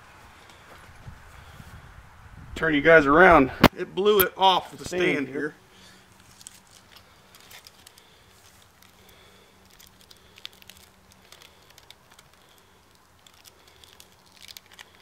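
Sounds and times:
plastic blister pack crinkling: 6.1s - 15.0s.

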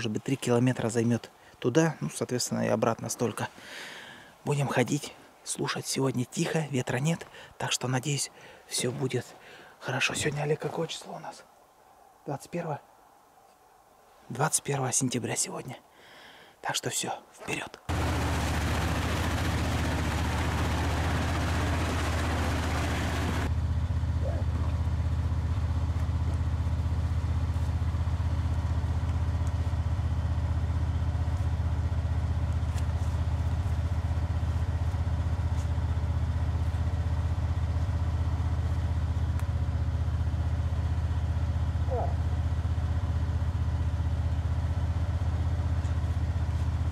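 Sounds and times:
vehicle engine idling: 17.9s - 46.9s.

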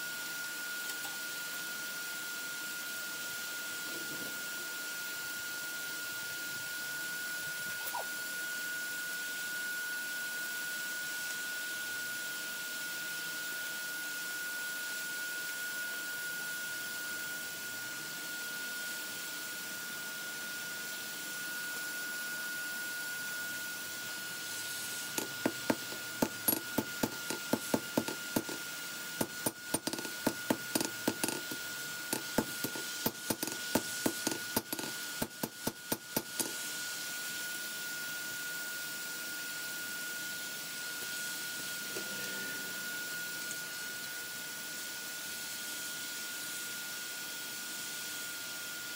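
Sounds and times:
steady high whine: 0.0s - 45.7s.

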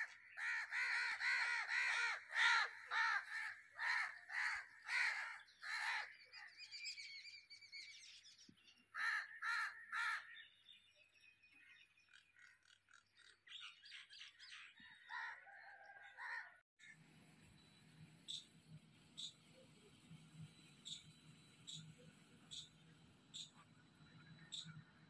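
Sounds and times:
crow cawing: 0.0s - 6.1s, 8.9s - 10.4s
small birds chirping: 17.4s - 25.0s.

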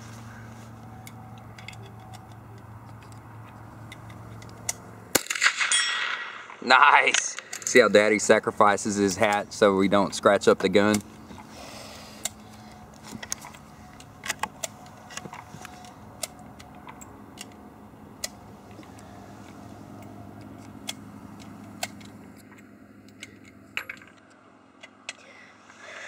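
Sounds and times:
faint steady hum: 0.0s - 26.0s
rifle clicks and metallic clinks: 0.8s - 8.3s, 12.2s - 25.2s.

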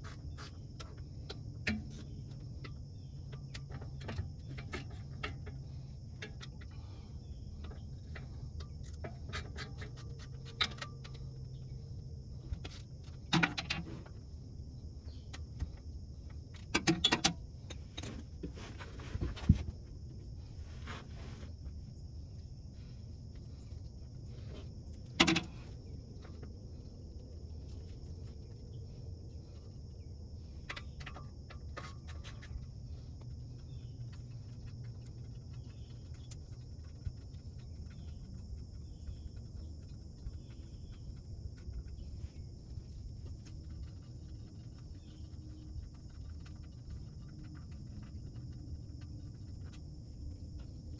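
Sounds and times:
insect chorus: 0.0s - 50.9s
low hum: 0.0s - 50.9s.

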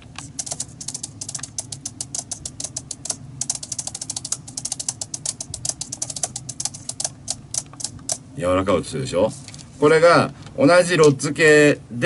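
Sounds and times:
brushy percussion tapping: 0.2s - 8.2s.

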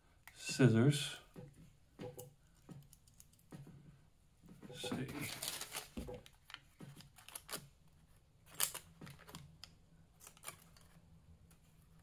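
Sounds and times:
small scissors snipping paper: 5.3s - 7.7s, 8.4s - 12.0s.

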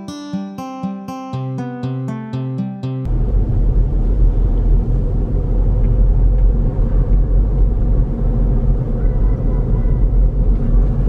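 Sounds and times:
car road and engine noise: 3.1s - 11.0s.

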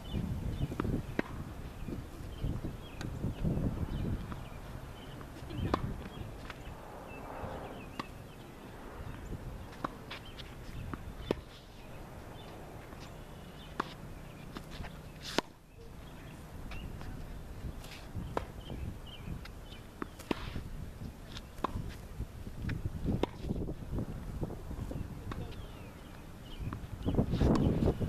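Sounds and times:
tennis ball hits: 0.6s - 1.6s, 2.3s - 3.2s, 3.9s - 15.6s
shuffling footsteps on court: 0.6s - 18.6s, 19.4s - 23.6s, 24.8s - 28.0s.

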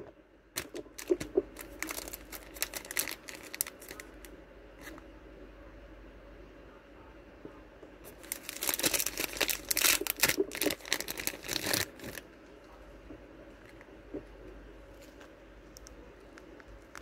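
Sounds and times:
plastic packaging crinkling: 0.6s - 5.0s, 8.0s - 12.2s.

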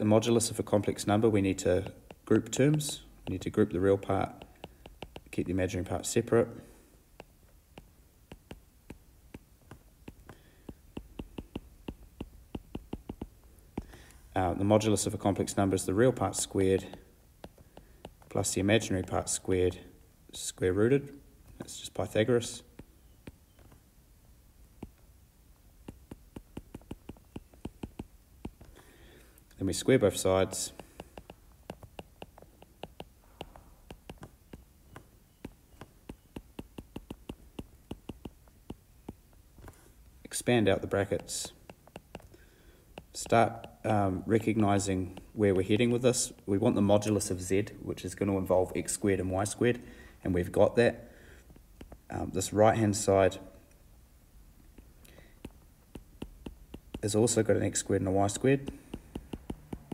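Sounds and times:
stylus tapping on tablet screen: 1.6s - 5.5s, 7.1s - 14.0s, 16.3s - 18.4s, 22.7s - 23.8s, 24.8s - 25.1s, 25.8s - 28.8s, 30.5s - 39.8s, 40.7s - 44.0s, 51.5s - 52.1s, 54.6s - 57.3s, 58.3s - 59.9s.

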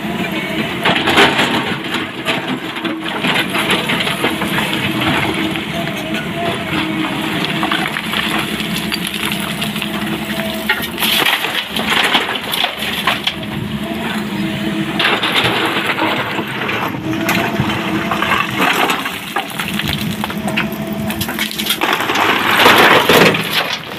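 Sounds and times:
diesel engine under load: 0.0s - 23.9s
steel bucket scraping rock: 1.2s - 14.2s, 15.0s - 23.9s
stones clattering and grinding: 7.2s - 13.5s, 17.3s - 23.9s.

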